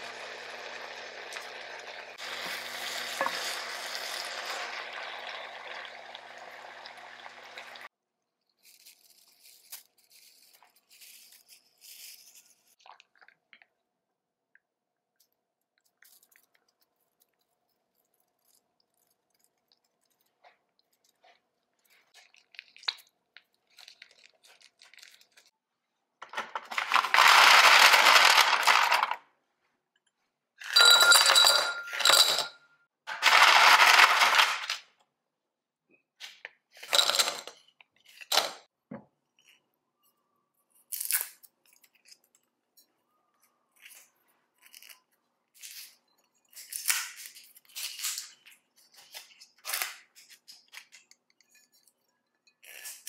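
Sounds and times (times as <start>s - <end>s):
ice cubes poured into glasses: 26.6s - 29.2s, 33.1s - 34.8s, 36.8s - 37.6s
glassware and bottles handled: 30.6s - 32.8s
ice clinking: 30.7s - 32.6s.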